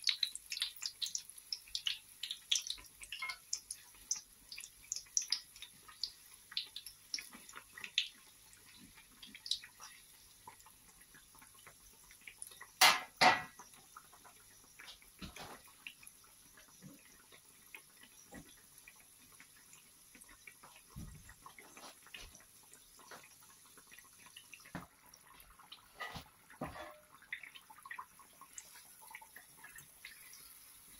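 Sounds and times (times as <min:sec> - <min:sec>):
pastries deep-frying in oil: 0:00.0 - 0:30.9
metal fork clinking pan: 0:03.1 - 0:03.5, 0:12.8 - 0:13.5.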